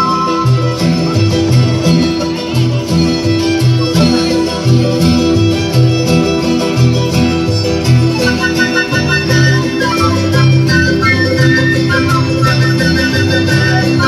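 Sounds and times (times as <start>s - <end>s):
live band music: 0.0s - 14.0s.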